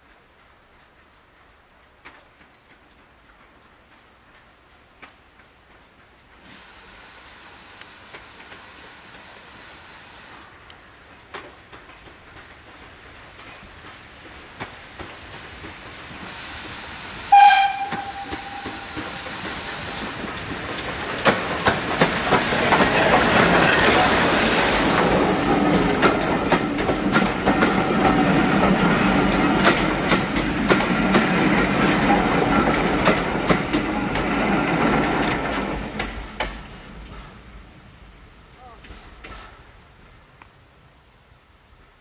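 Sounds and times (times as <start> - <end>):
wheels clicking over rail joints: 0.2 - 6.4, 10.5 - 16.2, 17.6 - 37.6
train passing: 0.4 - 40.7
steam locomotive whistle: 16.3 - 20.2.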